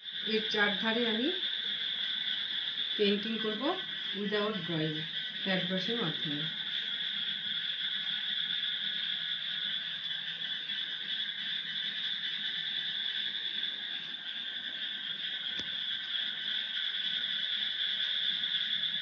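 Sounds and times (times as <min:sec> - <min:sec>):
chorus of night animals: 0:00.0 - 0:19.0.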